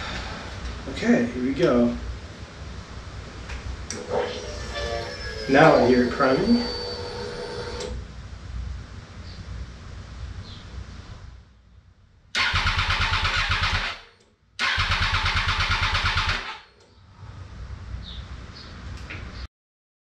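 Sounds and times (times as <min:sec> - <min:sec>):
electric fuel pump whining: 0:03.9 - 0:08.0
starter motor cranking engine: 0:12.4 - 0:14.0, 0:14.6 - 0:16.6.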